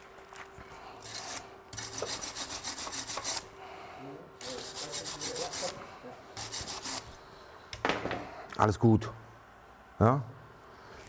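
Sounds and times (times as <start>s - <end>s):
wire brush scrubbing metal: 1.0s - 3.5s, 4.4s - 5.8s, 6.4s - 7.1s.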